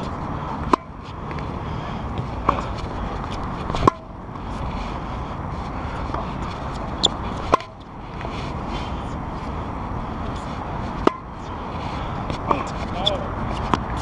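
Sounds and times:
steady low rumble: 0.0 - 14.0
racket hitting tennis ball: 0.6 - 4.1, 6.0 - 8.3, 10.9 - 11.4, 12.3 - 14.0.

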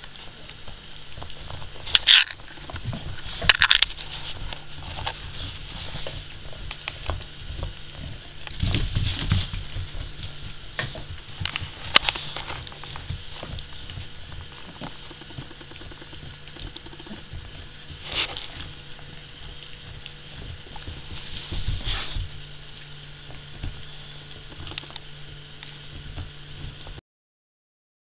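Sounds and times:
dog teeth scraping antler: 1.8 - 2.8.

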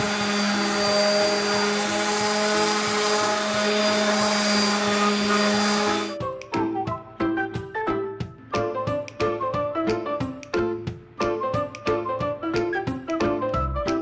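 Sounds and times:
orbital sander whirring: 0.0 - 6.2.

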